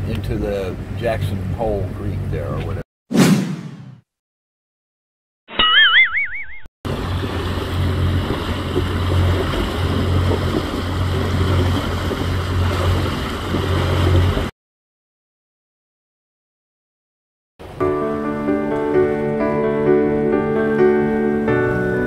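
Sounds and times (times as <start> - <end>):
wind and water rushing: 6.9 - 14.5.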